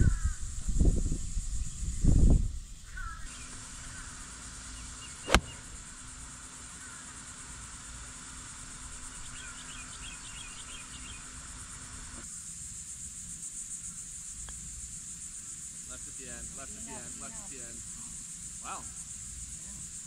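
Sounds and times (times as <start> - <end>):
high insect buzz: 0.0 - 20.0
golf club striking ball: 5.1 - 6.0.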